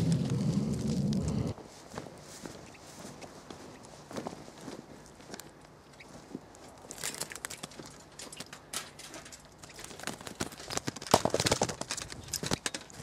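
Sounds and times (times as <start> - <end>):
footsteps crunching on dry soil: 0.0 - 8.4.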